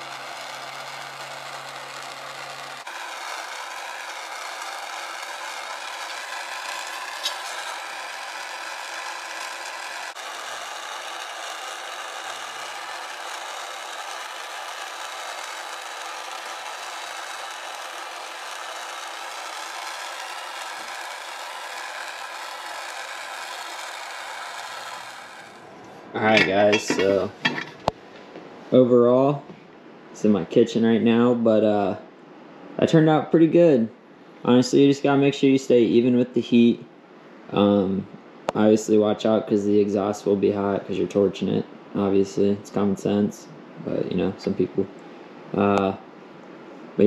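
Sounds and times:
gas torch flame hissing: 0.0s - 28.0s.

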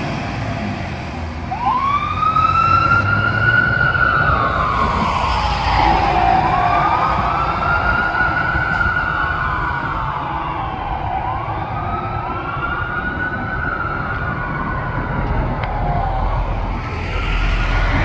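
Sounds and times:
fire engine siren wailing: 0.0s - 18.0s
truck engine rumbling: 0.0s - 18.0s.

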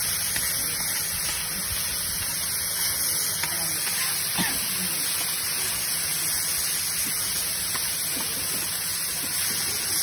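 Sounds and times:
meat sizzling on a griddle: 0.0s - 10.0s.

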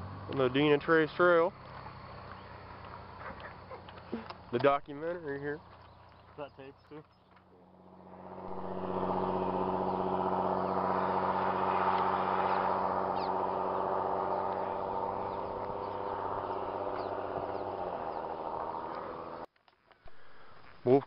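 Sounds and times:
steady engine drone: 7.3s - 19.5s.

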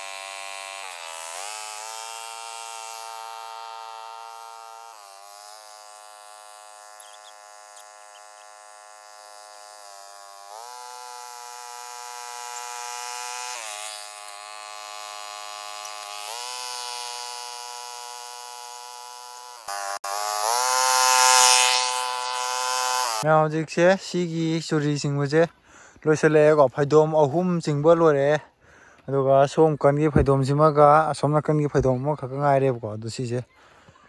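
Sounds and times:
power tiller engine running: 0.0s - 23.3s.

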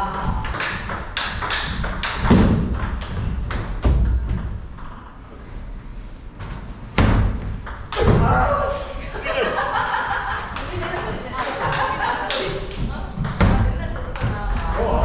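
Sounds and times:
table tennis balls clicking: 0.2s - 5.2s, 9.9s - 15.0s.

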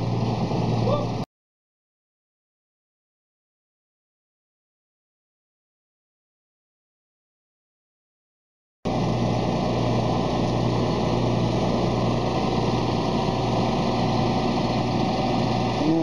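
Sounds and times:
truck engine idling: 8.9s - 16.0s.

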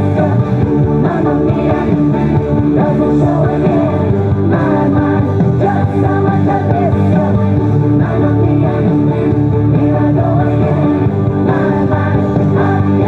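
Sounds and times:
upbeat song with singing: 0.0s - 13.0s.

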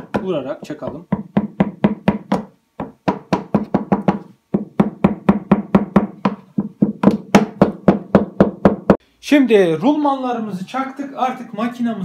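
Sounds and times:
hammer tapping rapidly: 0.0s - 9.0s.

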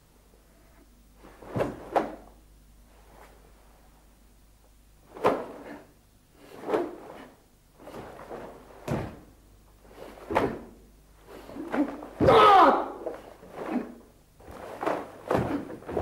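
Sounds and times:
faint hum: 0.0s - 16.0s
bare feet thudding on wood: 8.8s - 9.3s, 14.4s - 16.0s.

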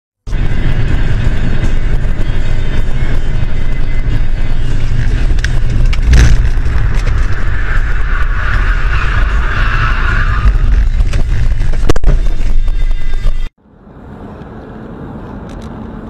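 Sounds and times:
car cabin road rumble: 0.3s - 16.0s
harsh tyre scrubbing: 4.1s - 13.3s.

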